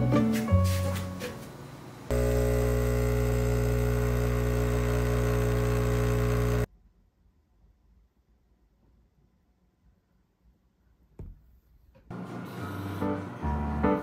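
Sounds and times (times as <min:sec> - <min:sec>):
espresso machine pump buzzing: 0:02.1 - 0:06.7.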